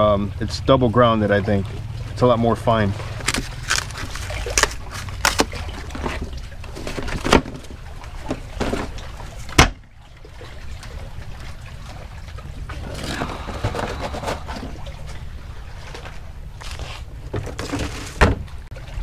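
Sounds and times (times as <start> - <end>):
paper crackling: 3.2 - 6.2
steady low rumble: 7.7 - 17.3.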